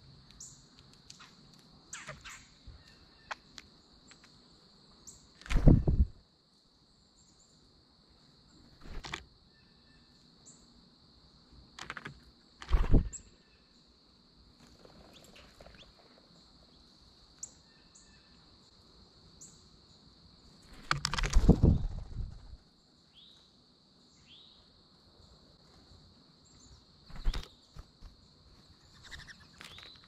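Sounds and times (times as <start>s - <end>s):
high insect trill: 0.0s - 30.0s
high bird chirps: 1.9s - 3.4s.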